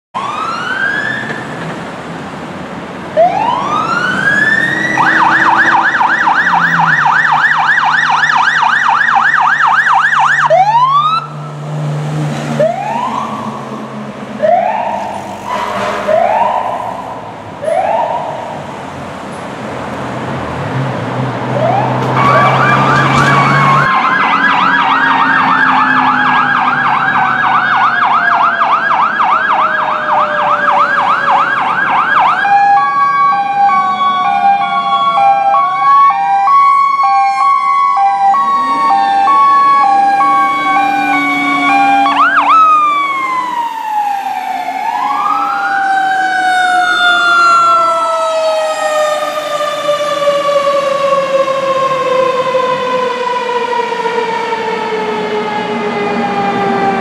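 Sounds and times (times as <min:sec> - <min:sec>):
electronic yelp siren: 0:00.2 - 0:01.6, 0:03.2 - 0:11.6, 0:12.6 - 0:18.8, 0:21.6 - 0:57.0
wail sirens rising and falling: 0:00.2 - 0:57.0
hi-lo two-tone siren: 0:03.2 - 0:11.5, 0:14.4 - 0:18.6, 0:21.6 - 0:57.0.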